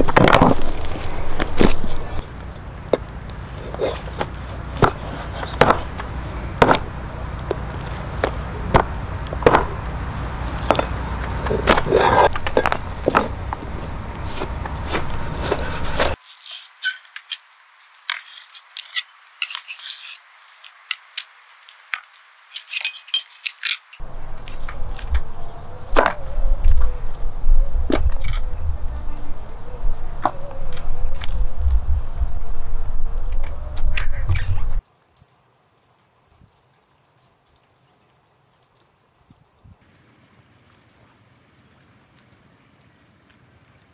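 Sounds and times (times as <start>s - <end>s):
hatchet chopping meat and bone: 2.9s - 16.2s, 24.0s - 26.9s.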